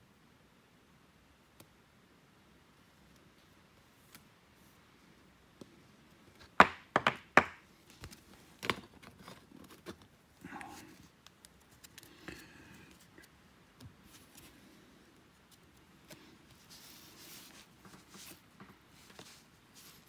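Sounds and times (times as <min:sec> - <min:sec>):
cards tapping and knocking: 0:06.4 - 0:09.9
cards rustling and sliding: 0:07.9 - 0:20.0.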